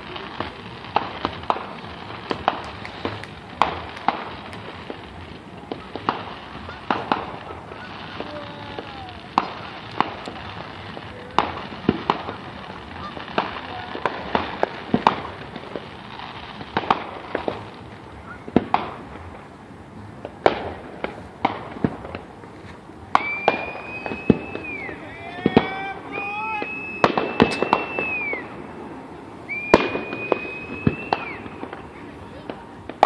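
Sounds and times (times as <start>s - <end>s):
fireworks bursting: 0.0s - 33.0s
high whistle: 23.2s - 28.6s, 29.4s - 31.7s.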